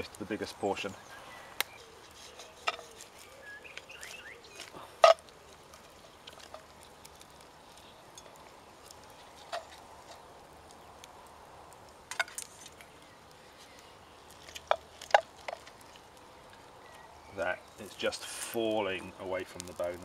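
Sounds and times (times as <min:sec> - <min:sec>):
knife and fork scraping a pot: 0:01.8 - 0:03.2.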